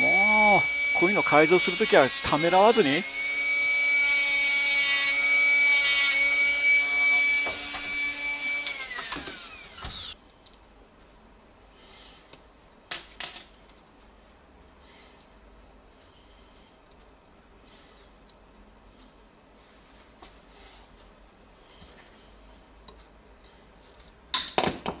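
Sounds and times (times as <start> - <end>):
electric rotary tool running: 0.0 - 10.2.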